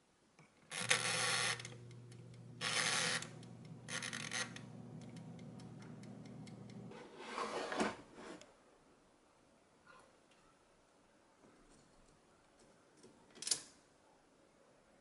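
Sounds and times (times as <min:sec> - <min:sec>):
air fryer fan humming: 0:00.8 - 0:06.9
timer knob ratcheting: 0:00.8 - 0:06.9
basket sliding out with scrape: 0:06.9 - 0:08.4.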